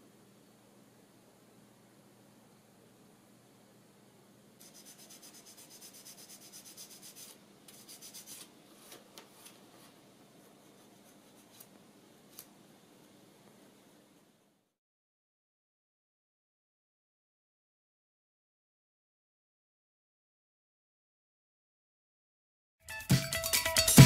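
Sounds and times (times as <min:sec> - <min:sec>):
paper rubbing on wood: 0:04.6 - 0:09.6.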